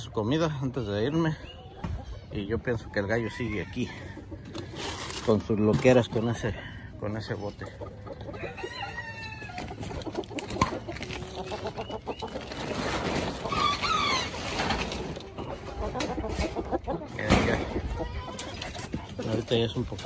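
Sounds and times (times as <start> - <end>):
chickens clucking: 0.0 - 20.0
chickens squawking: 0.0 - 20.0
plastic tarp rustling: 12.3 - 15.3.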